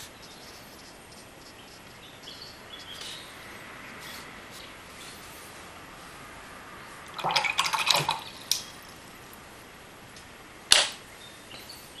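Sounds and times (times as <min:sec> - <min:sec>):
sharp loud click: 0:10.7 - 0:11.0.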